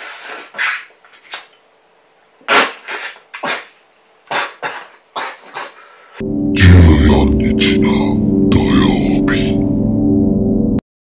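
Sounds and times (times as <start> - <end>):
person slurping noodles: 2.5 - 3.7.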